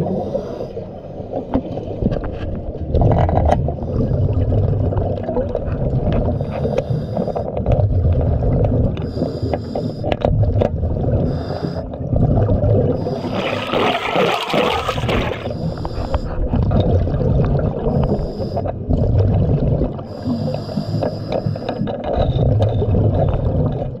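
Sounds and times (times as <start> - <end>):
low rumble of bubbles and water: 0.0 - 24.0
diver inhaling gas hiss: 6.4 - 7.5, 9.0 - 10.1, 11.2 - 11.9, 13.0 - 13.7, 15.2 - 16.5, 17.9 - 18.7, 20.1 - 21.8
bubbling exhaust burst: 12.1 - 15.6.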